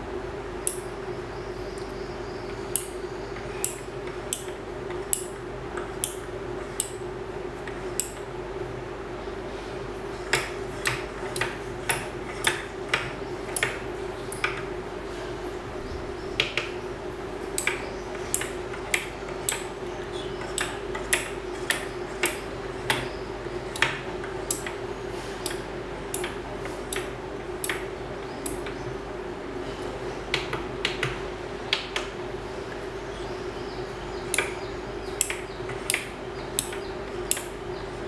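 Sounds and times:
steady hum: 0.0 - 38.0
relays clicking: 17.5 - 24.8, 25.4 - 28.8, 34.3 - 37.6.

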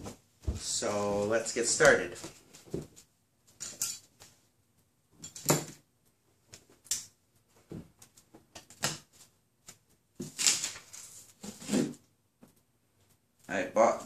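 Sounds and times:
packing tape rustling and crinkling: 8.1 - 12.0.

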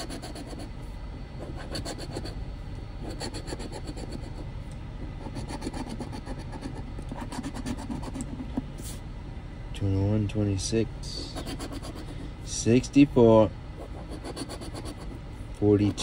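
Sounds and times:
coin scraping scratch card: 0.0 - 0.7, 1.4 - 2.3, 3.0 - 4.4, 5.2 - 9.0, 11.2 - 12.2, 13.8 - 15.2.

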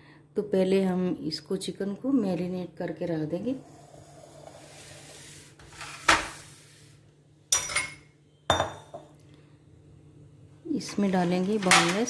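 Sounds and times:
glass bowl ringing: 7.6 - 9.0
kitchenware knocking on stone: 7.6 - 9.0.

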